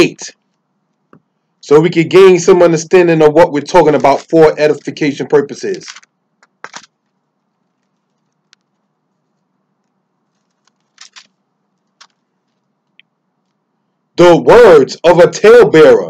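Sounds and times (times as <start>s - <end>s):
handling clicks and rustles: 5.6s - 13.6s.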